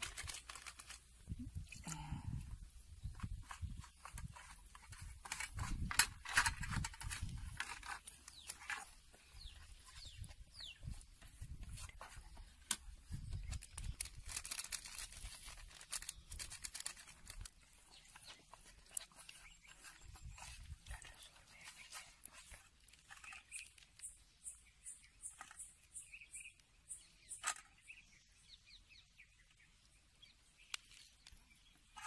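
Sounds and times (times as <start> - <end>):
plastic packets crinkling: 0.0 - 2.1, 13.1 - 24.0.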